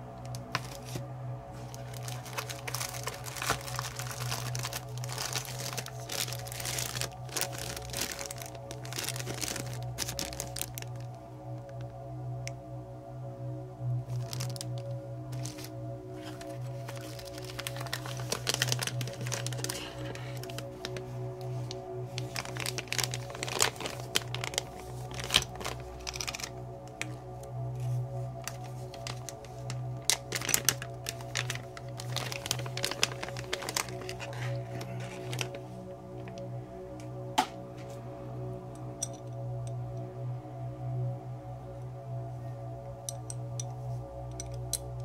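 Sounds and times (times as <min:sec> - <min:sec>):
background music: 0:00.0 - 0:45.0
plastic bag crinkling: 0:00.3 - 0:11.8, 0:14.1 - 0:27.2, 0:27.8 - 0:36.5.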